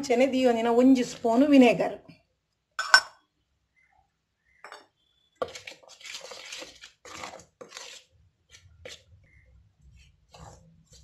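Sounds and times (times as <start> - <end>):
metal clink against steel bowl: 2.8 - 3.2
hand mixing flour in bowl: 5.4 - 11.0.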